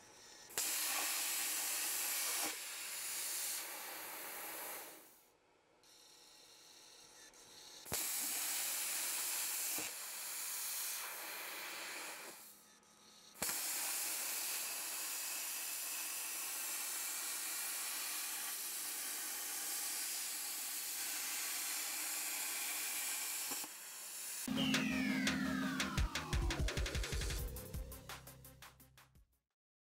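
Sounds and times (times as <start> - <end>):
plasma cutter arc hissing: 0.5 - 5.2, 7.9 - 12.5, 13.4 - 24.5.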